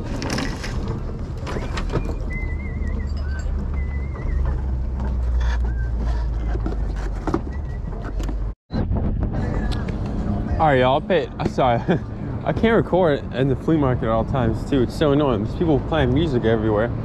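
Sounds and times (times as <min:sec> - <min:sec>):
wind rumble on microphone: 0:07.4 - 0:17.0.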